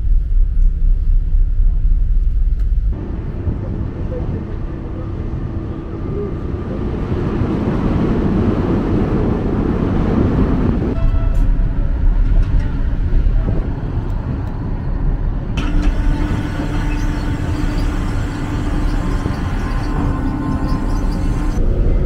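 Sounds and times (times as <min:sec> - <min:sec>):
mechanical hum: 0:00.0 - 0:22.0
ship engines deep rumble: 0:00.0 - 0:22.0
propellers churning water: 0:03.0 - 0:11.0, 0:11.6 - 0:22.0.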